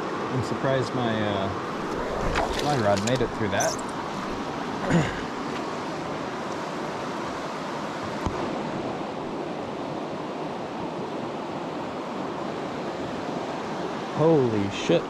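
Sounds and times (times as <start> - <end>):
mountain stream rushing over rocks: 1.2 - 8.9.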